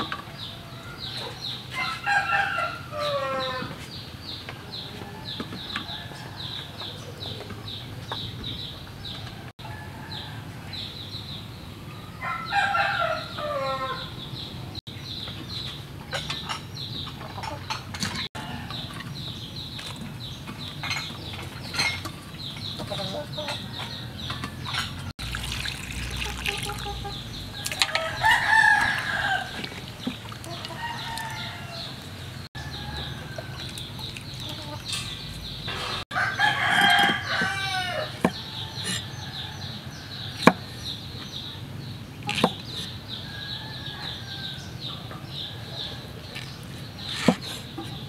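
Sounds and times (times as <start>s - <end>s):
rooster crowing: 27.6s - 29.6s, 36.1s - 39.6s.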